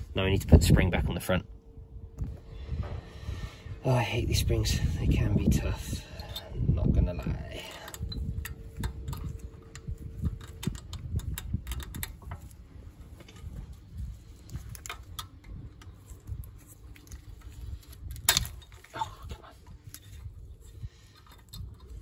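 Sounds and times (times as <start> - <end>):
wind rumble on microphone: 0.0 - 22.0
metal spring clicks and scrapes: 7.5 - 12.5.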